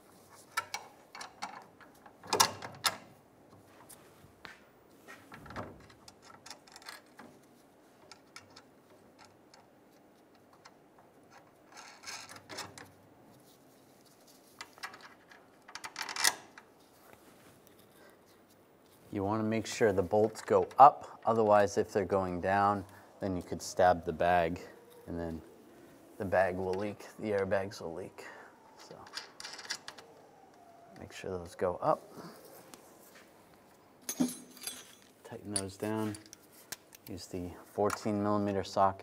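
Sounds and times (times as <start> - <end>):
metal clinks: 34.0 - 36.4.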